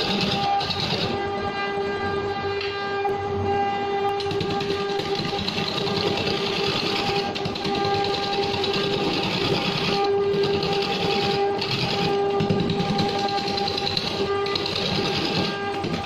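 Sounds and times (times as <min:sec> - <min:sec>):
wood lathe whining: 0:00.0 - 0:01.3, 0:03.6 - 0:16.0
chisel scraping wood: 0:04.2 - 0:16.0.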